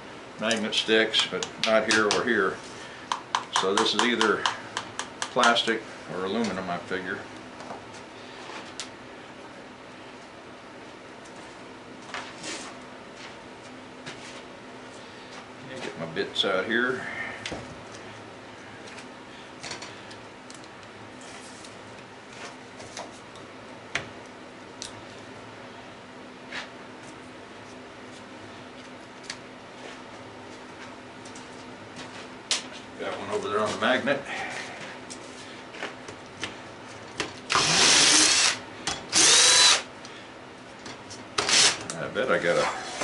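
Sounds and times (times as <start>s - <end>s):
steady low hum: 0.0s - 43.0s
cordless drill spinning: 37.5s - 39.9s, 41.4s - 41.8s.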